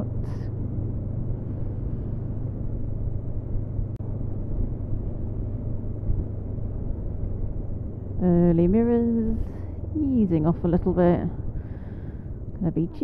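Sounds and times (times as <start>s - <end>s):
motorcycle engine running: 0.0s - 12.5s
road rumble: 0.0s - 13.0s
wind: 0.0s - 13.0s.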